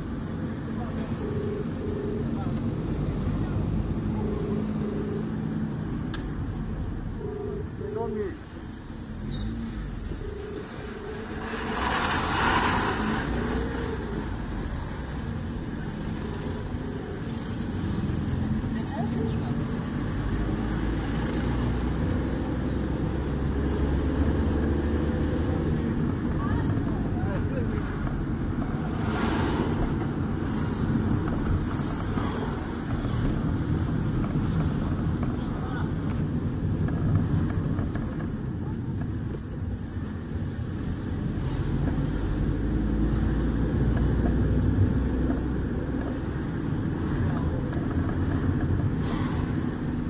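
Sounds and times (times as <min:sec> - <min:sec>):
car engine rumble: 0:00.0 - 0:50.0.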